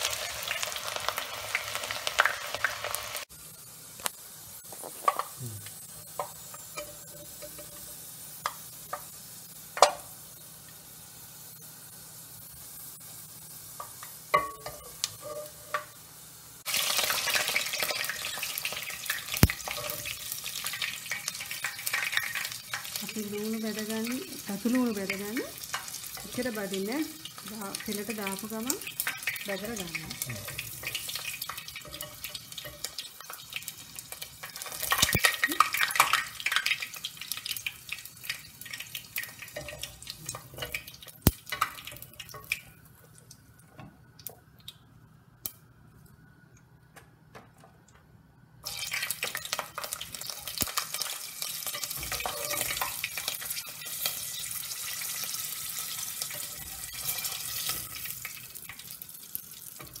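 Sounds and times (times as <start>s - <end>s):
hot oil sizzling and crackling: 0.0s - 46.5s, 48.6s - 60.0s
metal spoon clink: 14.4s - 15.8s, 51.7s - 53.0s.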